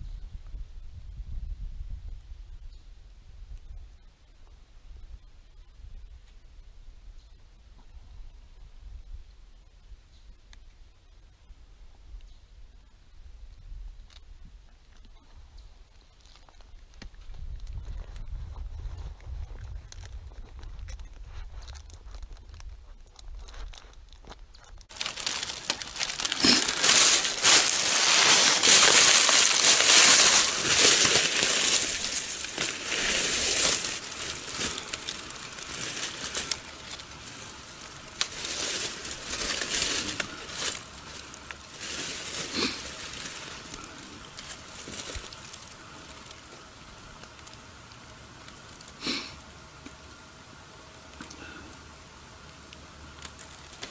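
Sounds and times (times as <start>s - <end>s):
dry leaves crunching and rustling: 24.9s - 49.2s, 53.1s - 53.9s.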